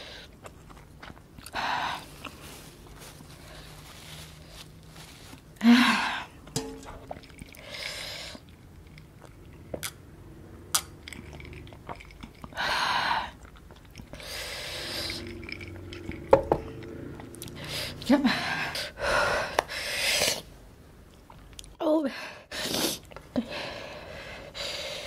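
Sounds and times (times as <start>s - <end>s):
person chewing: 0.1s - 5.5s, 10.7s - 18.0s.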